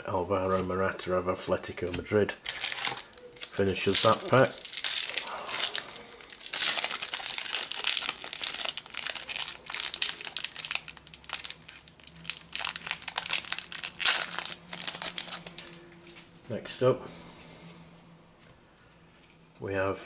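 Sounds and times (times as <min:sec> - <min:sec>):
foil wrapper crinkling and tearing: 0:02.4 - 0:15.8.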